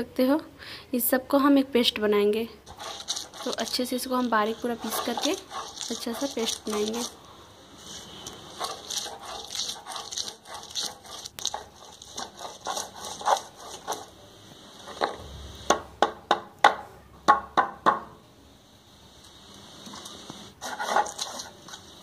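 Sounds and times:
stone grinding on stone slab: 2.7 - 7.2, 7.8 - 14.1, 20.6 - 22.0.

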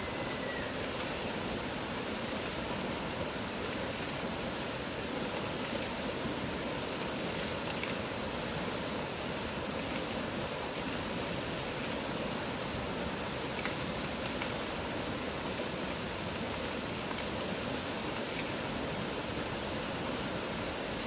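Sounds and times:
river rushing over rocks: 0.0 - 21.0.

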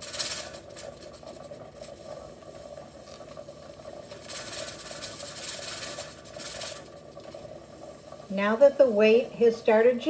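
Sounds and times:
pressure canner hissing steam: 0.0 - 10.0
steady hum: 0.0 - 10.0.

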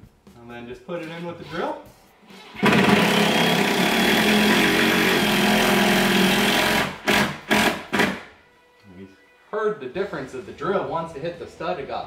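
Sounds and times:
cordless impact driver driving screw: 2.3 - 8.2.

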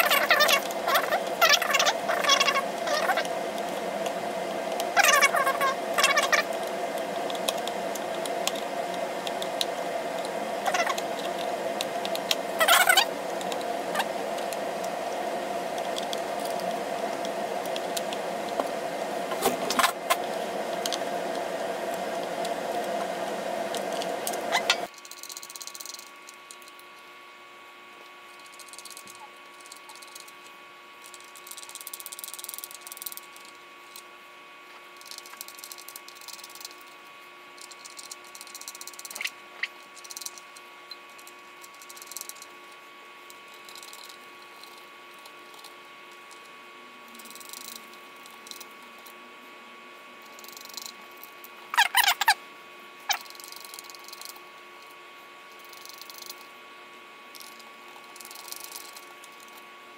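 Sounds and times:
loud steady hum: 0.0 - 24.9
quiet hum: 0.0 - 59.9
small metallic clicks and rattles: 24.9 - 27.0, 35.0 - 36.9, 37.6 - 39.3, 40.0 - 42.5, 43.3 - 46.5, 57.3 - 59.6.

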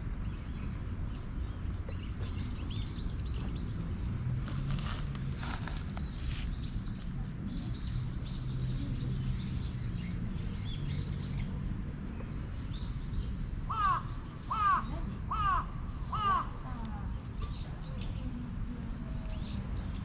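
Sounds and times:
crow cawing: 13.7 - 16.5.

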